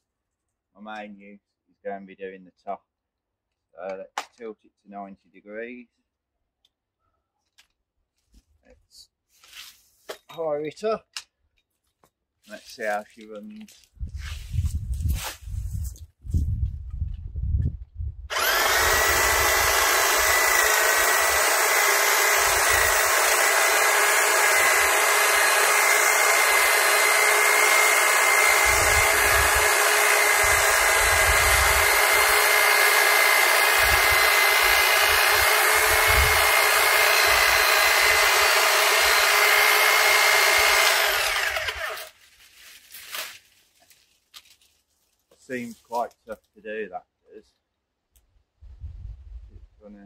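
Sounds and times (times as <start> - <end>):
electric hedge trimmer running: 18.3 - 42.2.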